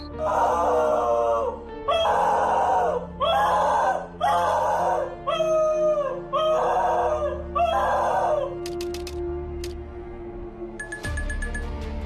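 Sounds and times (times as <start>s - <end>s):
dog howling: 0.2s - 8.6s.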